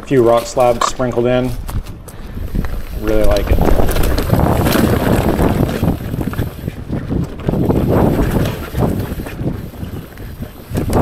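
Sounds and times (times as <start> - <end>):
bike knocking and rattling: 0.0 - 11.0
wind buffeting microphone: 0.0 - 11.0
tyres rolling over dirt and rock: 2.3 - 11.0.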